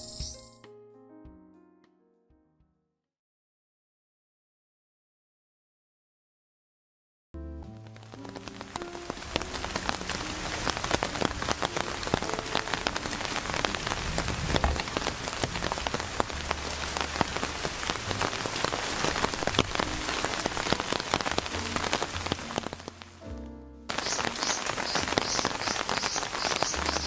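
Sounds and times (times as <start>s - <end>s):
rain pattering: 7.7s - 23.3s, 23.9s - 27.0s.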